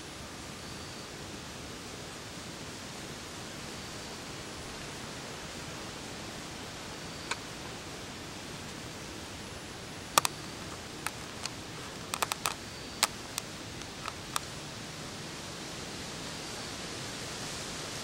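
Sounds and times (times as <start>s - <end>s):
steady hiss: 0.0s - 18.0s
sharp little clicks: 6.8s - 7.7s, 10.1s - 14.5s.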